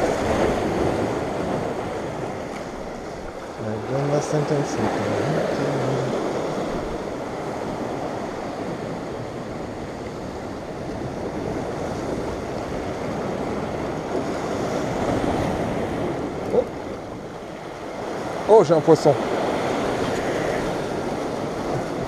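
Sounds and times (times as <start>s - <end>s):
surf washing over rocks: 0.0s - 22.0s
wind buffeting microphone: 4.7s - 18.5s, 19.2s - 22.0s.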